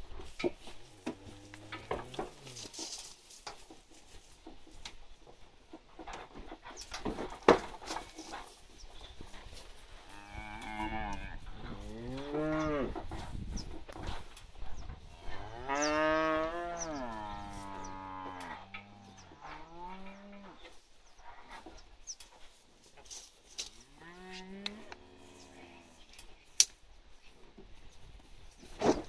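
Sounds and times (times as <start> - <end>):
heifers mooing: 1.0 - 2.7, 10.1 - 13.0, 15.2 - 20.6.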